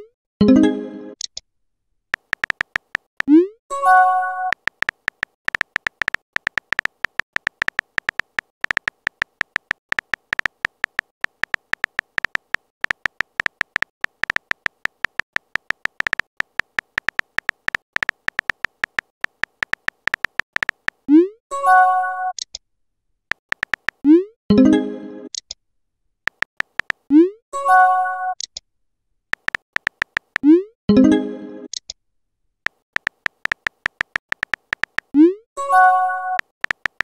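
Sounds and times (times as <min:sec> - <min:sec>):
phone keyboard typing clicks: 0:02.2 - 0:03.4, 0:04.4 - 0:21.1, 0:23.3 - 0:24.1, 0:26.3 - 0:27.1, 0:29.4 - 0:30.5, 0:32.7 - 0:35.2, 0:36.4 - 0:37.0.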